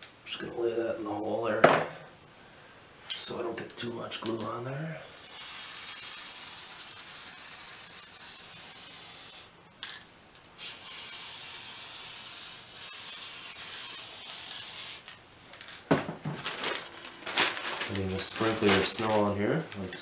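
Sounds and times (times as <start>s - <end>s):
aerosol can spraying: 5.1s - 9.5s, 10.6s - 15.1s.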